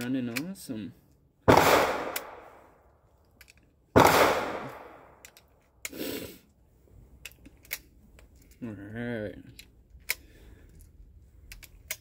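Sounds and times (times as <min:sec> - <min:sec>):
loud gunshots ringing: 0:01.5 - 0:02.5, 0:04.0 - 0:05.1
cartridges clicking into magazine: 0:04.4 - 0:06.0, 0:07.2 - 0:08.6, 0:09.5 - 0:10.3, 0:11.4 - 0:12.0.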